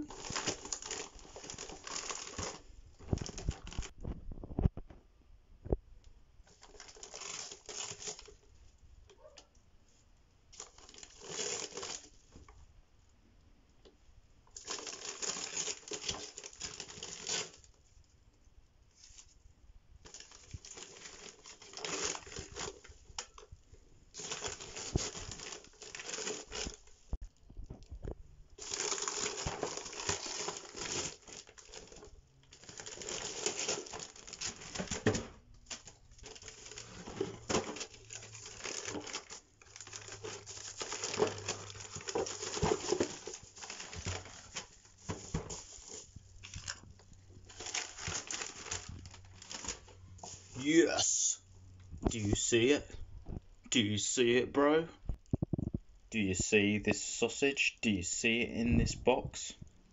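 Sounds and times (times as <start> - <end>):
paper tearing and crumpling: 10.6 - 12.1.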